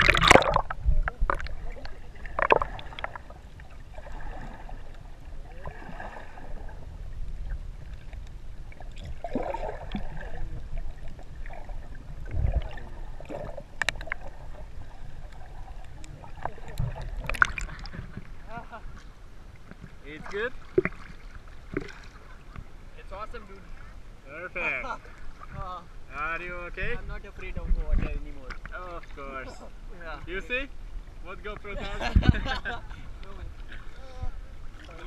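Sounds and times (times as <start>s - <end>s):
muffled underwater rumble: 0.0s - 20.0s, 30.8s - 35.0s
water gurgling swirls: 0.0s - 24.0s.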